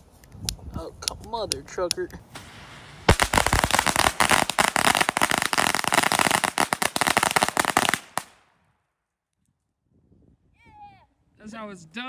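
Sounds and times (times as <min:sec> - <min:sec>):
firecrackers going off: 0:02.3 - 0:08.4.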